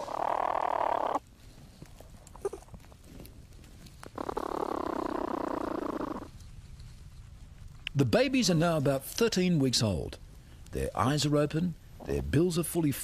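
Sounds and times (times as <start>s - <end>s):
platypus buzzing call: 0.0s - 1.2s.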